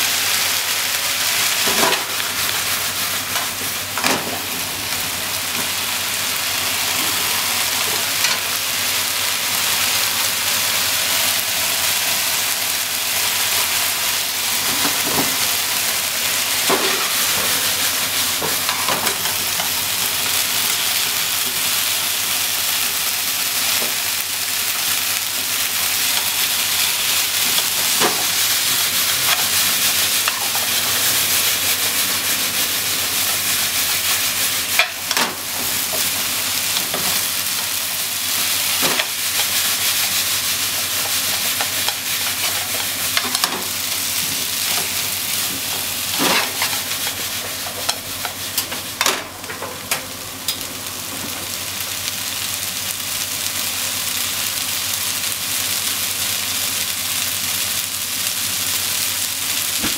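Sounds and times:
food sizzling in a frying pan: 0.0 - 59.9
chopsticks scraping a pan: 46.1 - 48.4.

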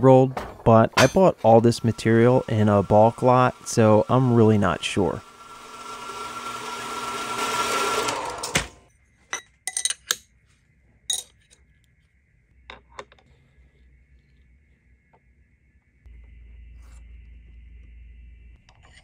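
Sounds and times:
bandsaw cutting steel: 1.0 - 8.8.

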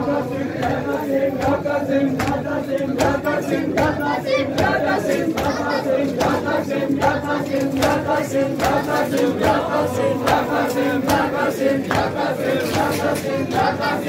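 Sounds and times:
crowd chanting in unison: 0.0 - 14.0
sharp slaps: 7.0 - 9.6.

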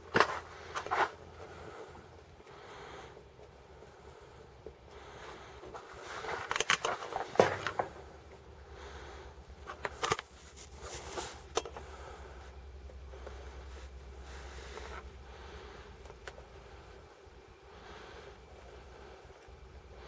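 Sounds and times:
low steady hum: 0.0 - 20.0
rustling and clicking: 5.7 - 8.0.

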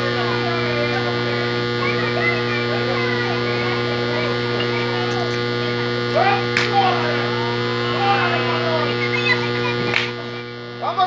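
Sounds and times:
electrical mains hum: 0.0 - 11.0
faint spectator chatter: 0.0 - 11.0.

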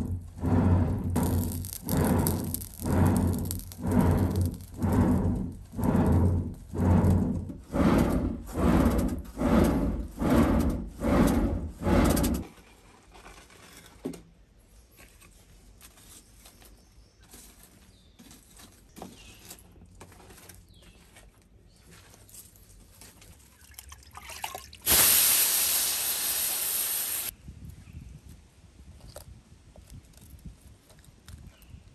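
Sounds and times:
stone scraping on stone slab: 0.0 - 12.4.

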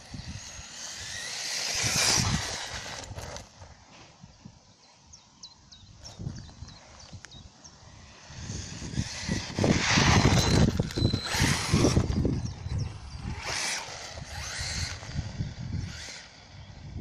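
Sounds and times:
toy truck motor whining: 0.0 - 3.7, 8.0 - 17.0.

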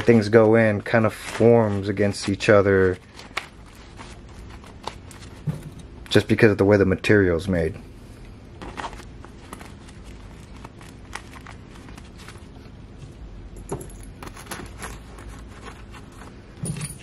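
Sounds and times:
small metal tools clinking: 13.6 - 15.0, 16.6 - 17.0.

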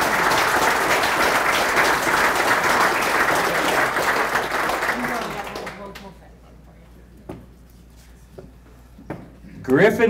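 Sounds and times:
audience applauding: 0.0 - 6.1.

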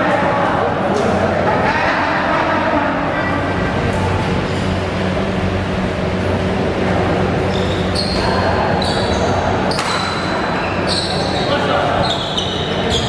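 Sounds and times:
background chatter: 0.0 - 13.0
steady low hum: 0.0 - 13.0.

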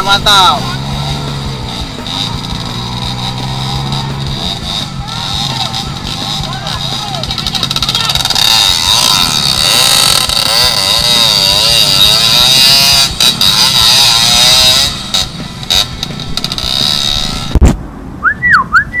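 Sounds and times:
dirt bike engine revving: 0.0 - 17.7.

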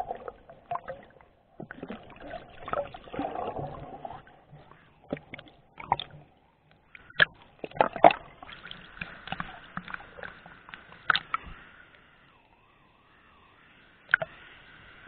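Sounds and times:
water sloshing and splashing: 0.0 - 11.6.

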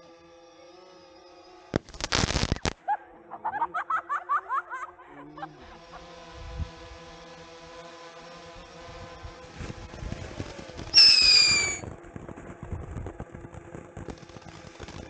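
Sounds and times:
steady hiss: 1.8 - 2.7
loud crackling: 1.8 - 2.8, 11.0 - 11.8
high wavering squeaks: 11.0 - 11.8.

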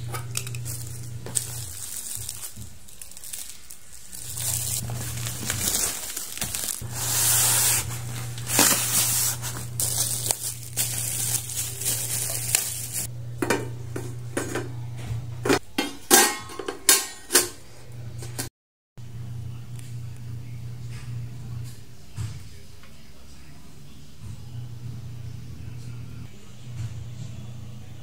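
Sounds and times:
plastic film rustling: 0.0 - 13.1
metal grill pan clanking: 15.4 - 17.6.

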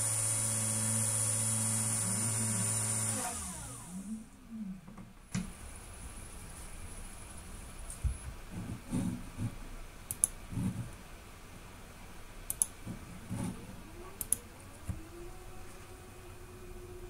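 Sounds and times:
motor humming: 0.0 - 4.3, 13.0 - 17.0.

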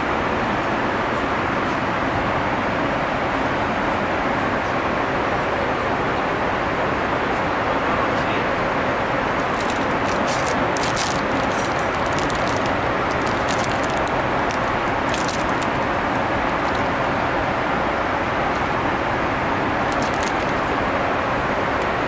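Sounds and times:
airplane cabin noise: 0.0 - 22.0
cellophane bag crinkling: 9.5 - 16.9, 19.9 - 20.7.

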